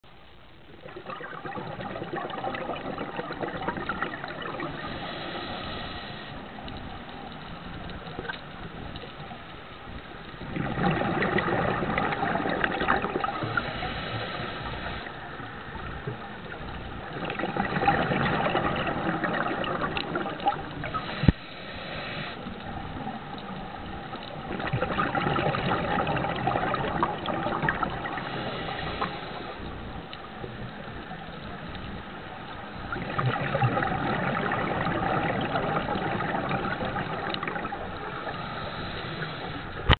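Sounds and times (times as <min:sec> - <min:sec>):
regulator bubbling exhalations: 0:00.6 - 0:06.4, 0:10.4 - 0:15.2, 0:15.8 - 0:23.2, 0:24.4 - 0:29.9, 0:32.8 - 0:39.9.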